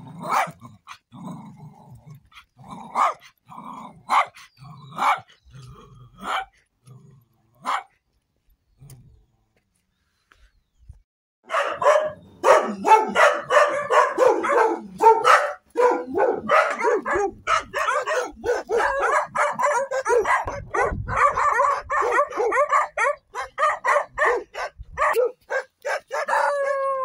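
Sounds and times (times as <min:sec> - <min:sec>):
dogs barking: 0:00.3 - 0:00.6, 0:02.9 - 0:03.3, 0:04.0 - 0:05.4, 0:06.2 - 0:06.6, 0:07.6 - 0:08.0, 0:11.4 - 0:26.9.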